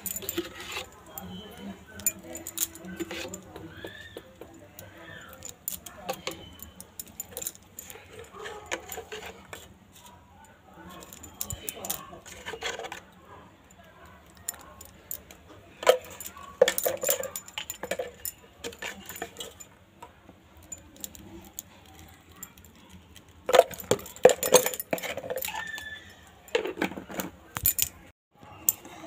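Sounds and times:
metal cooking utensils clattering: 15.5s - 19.7s.

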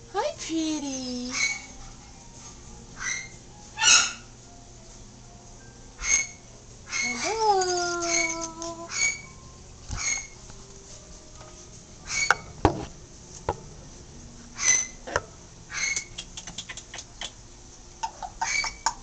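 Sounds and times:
metallic clinks: 7.1s - 9.4s.

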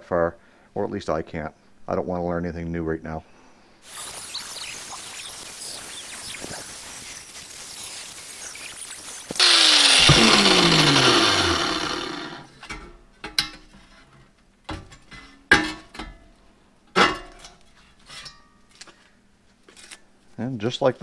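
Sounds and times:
angle grinder cutting steel: 3.9s - 12.5s.

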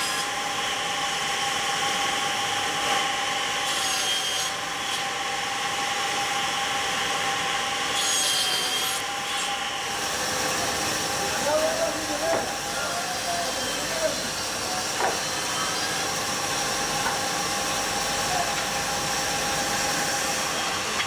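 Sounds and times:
saw blade cutting wood: 0.0s - 0.5s, 2.8s - 5.2s, 7.8s - 10.8s, 11.5s - 16.3s.

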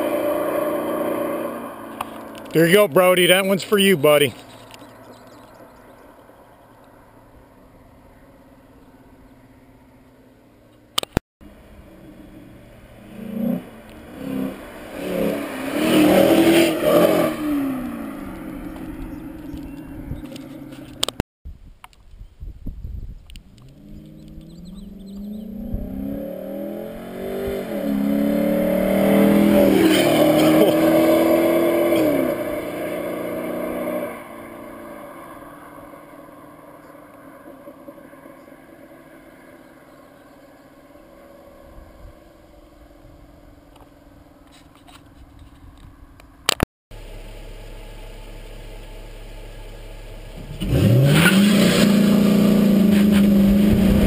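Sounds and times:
car engine accelerating past: 11.7s - 20.8s, 23.6s - 42.2s, 50.3s - 54.0s.

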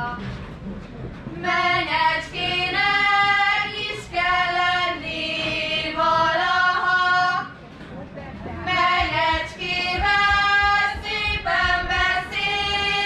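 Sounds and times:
girls singing together: 1.3s - 7.6s, 8.6s - 13.0s.

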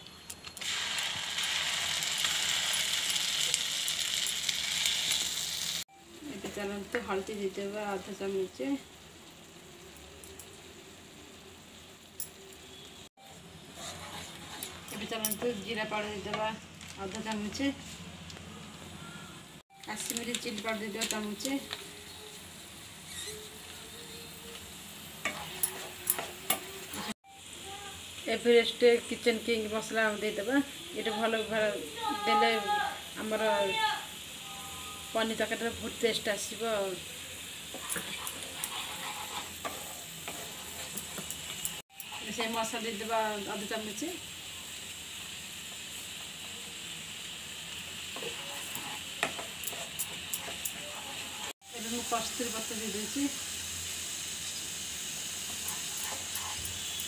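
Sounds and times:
paste sizzling in pan: 0.6s - 16.3s, 20.0s - 57.0s
spatula knocking and scraping pan: 37.7s - 42.6s, 48.1s - 51.3s.

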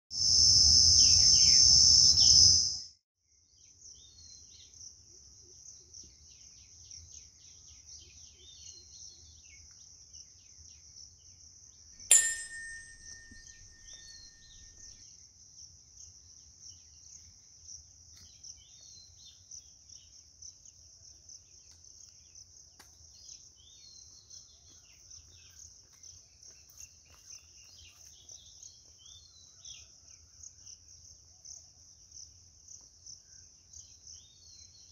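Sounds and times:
cricket trill: 0.2s - 2.9s
ringing ding: 12.0s - 15.0s
small birds chirping: 18.1s - 34.9s.

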